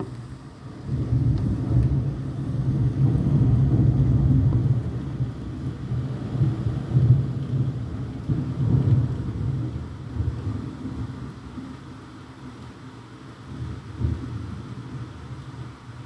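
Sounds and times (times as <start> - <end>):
rolling thunder: 0.7 - 11.3.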